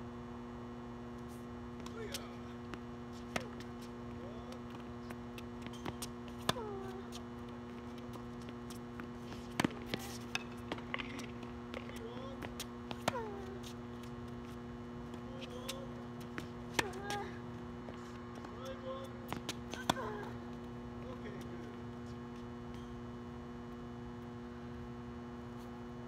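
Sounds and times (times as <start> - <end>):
electrical hum: 0.0 - 26.0
tennis balls struck by rackets: 1.7 - 17.4, 18.4 - 21.7.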